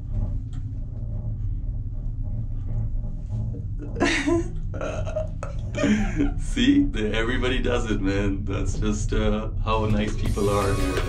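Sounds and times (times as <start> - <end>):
gondola cabin low rumble: 0.0 - 11.0
person speaking: 9.6 - 11.0.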